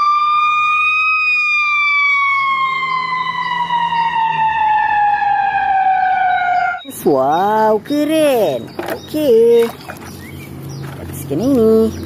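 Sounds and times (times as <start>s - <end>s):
ambulance siren wailing: 0.0s - 7.0s.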